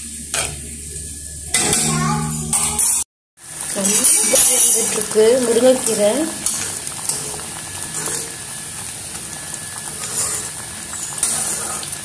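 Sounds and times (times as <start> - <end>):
thick stew sizzling and bubbling: 0.0 - 12.0
person's voice: 3.8 - 6.4
ladle scraping pan: 5.8 - 8.5, 9.6 - 12.0.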